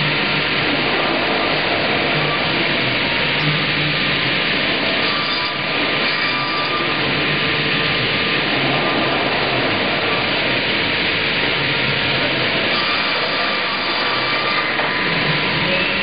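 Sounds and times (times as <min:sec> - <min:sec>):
circular saw cutting a log: 0:05.0 - 0:07.1, 0:12.7 - 0:16.0.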